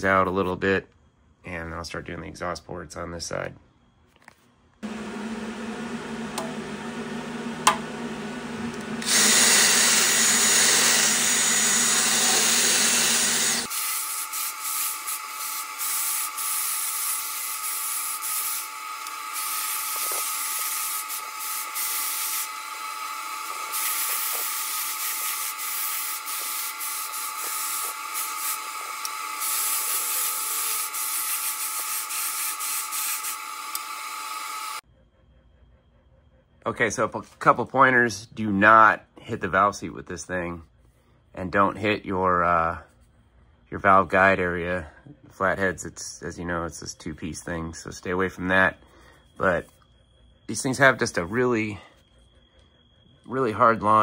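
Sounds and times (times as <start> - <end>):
rotary tool grinding metal: 9.0 - 34.8.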